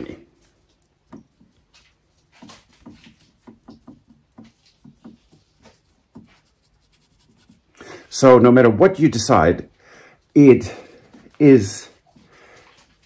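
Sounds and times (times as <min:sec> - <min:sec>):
paintbrush tapping on wood: 0:00.8 - 0:07.7.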